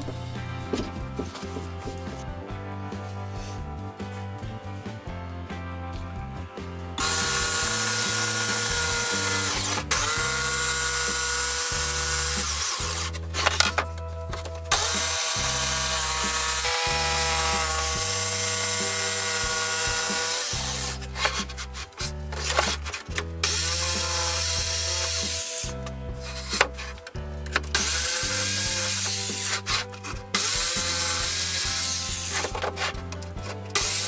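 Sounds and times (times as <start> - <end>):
background music: 0.0 - 34.0
electric jigsaw whining: 7.0 - 13.8, 14.7 - 26.8, 27.6 - 32.7, 33.7 - 34.0.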